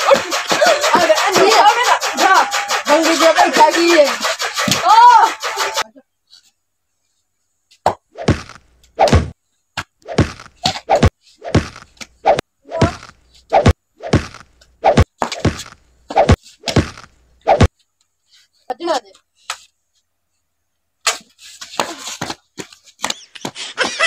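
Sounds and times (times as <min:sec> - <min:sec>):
hand blows and slaps: 0:00.0 - 0:05.8, 0:07.8 - 0:17.7.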